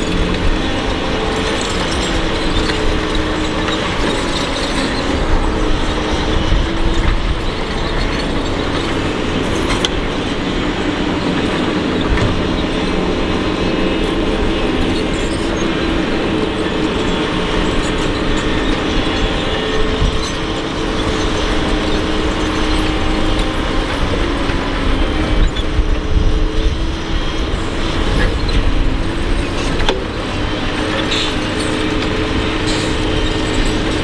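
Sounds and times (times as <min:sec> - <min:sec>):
diesel engine drone: 0:00.0 - 0:34.0
hydraulic whine: 0:00.0 - 0:34.0.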